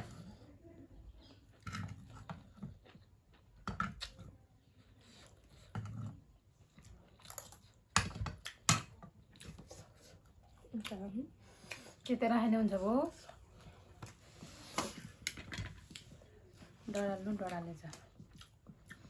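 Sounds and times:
chewing: 5.0s - 12.2s, 13.1s - 19.0s.

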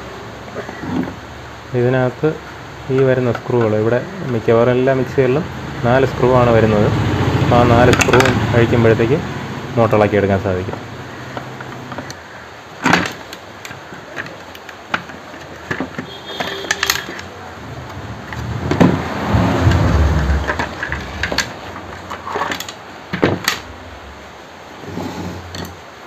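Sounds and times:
handling clicks and knocks: 0.5s - 1.2s, 2.4s - 5.2s, 7.6s - 8.8s, 9.9s - 23.8s, 25.3s - 25.9s
motor scraping and rumbling: 17.6s - 22.4s, 24.8s - 25.8s.

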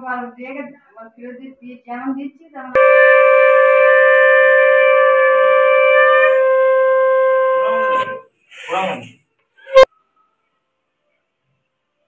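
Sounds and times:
conch shell blown: 2.8s - 8.3s, 9.6s - 9.9s.

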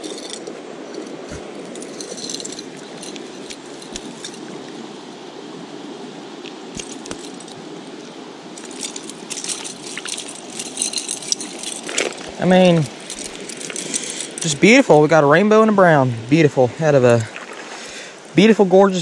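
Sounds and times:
handling clicks and rustles: 0.0s - 4.9s, 6.4s - 15.0s
creek water running: 0.0s - 19.0s.

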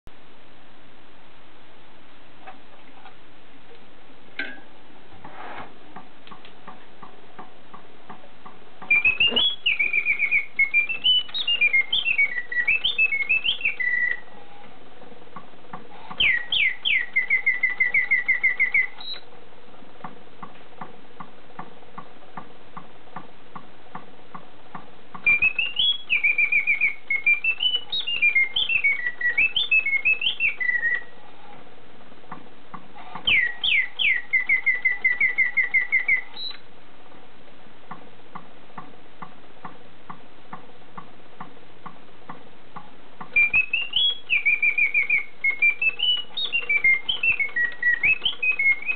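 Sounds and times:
mechanical bird whistling song: 8.8s - 14.3s, 16.1s - 19.2s, 25.2s - 31.1s, 33.2s - 36.6s, 43.3s - 48.9s.

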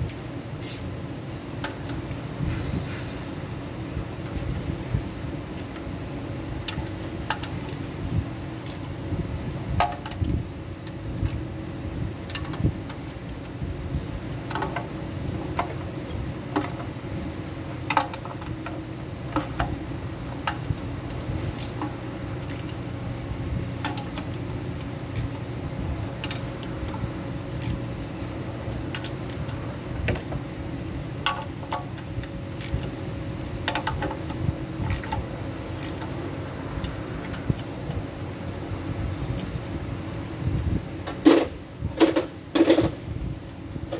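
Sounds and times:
steady background hum: 0.0s - 43.9s
hand tool clicking on metal bolts: 5.5s - 5.9s, 9.8s - 10.4s, 12.3s - 13.6s, 16.5s - 16.9s, 17.9s - 19.8s, 20.4s - 22.8s, 23.8s - 24.4s, 26.2s - 27.0s, 28.7s - 30.4s, 33.6s - 35.2s, 35.8s - 36.1s.

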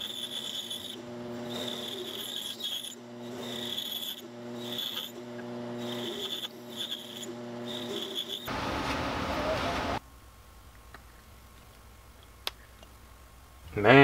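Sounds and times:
band saw humming: 0.0s - 10.0s
saw blade cutting wood: 0.0s - 10.0s.

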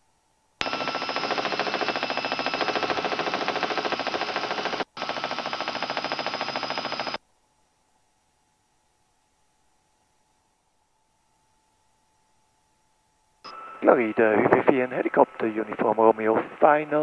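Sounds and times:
faint hum: 0.0s - 17.0s
helicopter rotor beating: 0.6s - 7.2s
high turbine whine: 0.6s - 7.2s, 13.5s - 17.0s.

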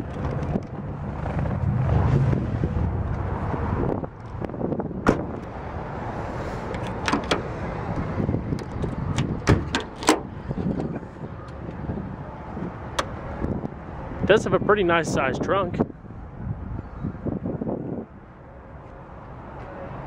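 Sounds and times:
trunk latch clacking: 5.0s - 5.4s, 6.7s - 7.5s, 8.5s - 11.8s
trunk lock clicks: 5.0s - 5.4s, 6.7s - 7.5s, 8.5s - 11.8s, 12.9s - 13.2s
car door shutting: 5.0s - 5.5s, 6.7s - 7.6s, 8.5s - 11.6s.

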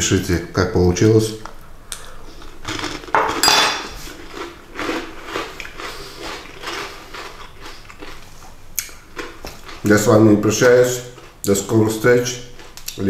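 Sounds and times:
person chewing crunchy food: 1.9s - 3.2s, 3.8s - 11.6s, 12.4s - 13.0s.

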